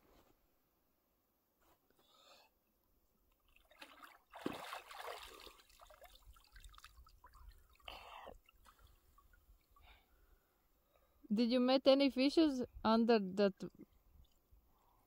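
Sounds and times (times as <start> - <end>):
water splashing and trickling: 3.3 - 10.2, 13.6 - 15.0.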